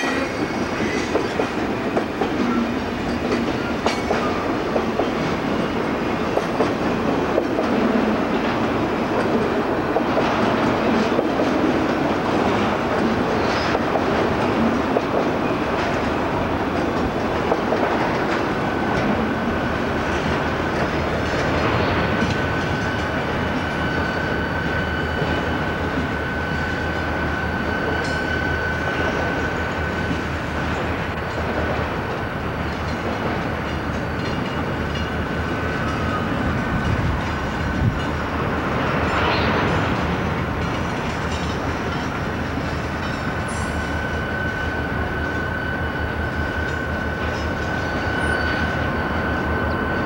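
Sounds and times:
train wheels rumbling and clicking: 0.0 - 50.0
high-pitched squeal: 43.3 - 50.0.

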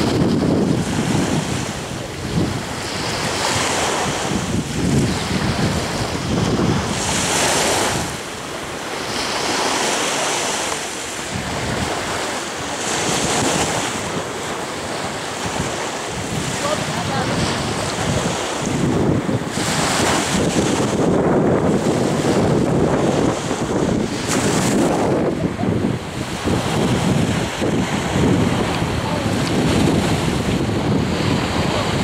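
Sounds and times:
small sea waves: 0.0 - 32.0
wind buffeting microphone: 0.0 - 32.0.

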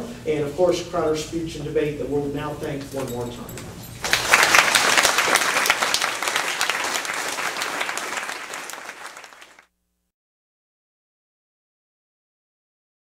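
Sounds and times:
audience applauding: 4.0 - 9.6.

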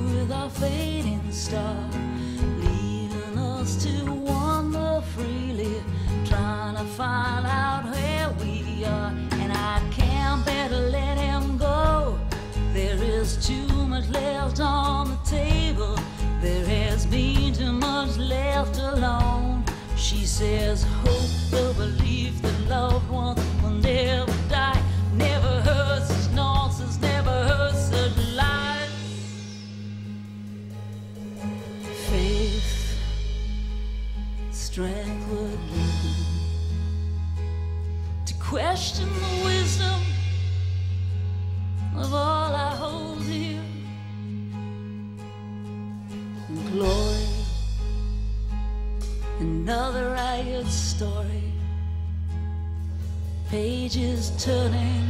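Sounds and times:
woman singing with vibrato: 0.0 - 29.5, 32.0 - 33.4, 34.5 - 36.9, 38.3 - 40.4, 41.9 - 43.9, 46.5 - 47.7, 49.4 - 51.7, 53.5 - 55.0
live rock band: 0.0 - 55.0.

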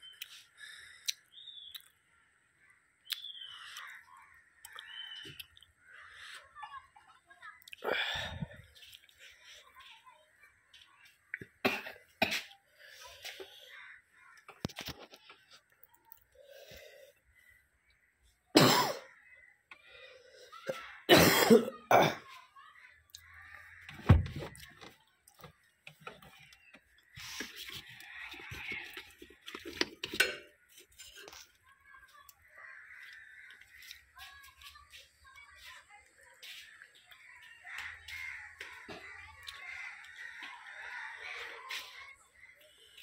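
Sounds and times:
high falling bird chirps: 0.0 - 6.5
person coughing: 11.6 - 12.5, 18.6 - 19.1, 21.1 - 22.2.

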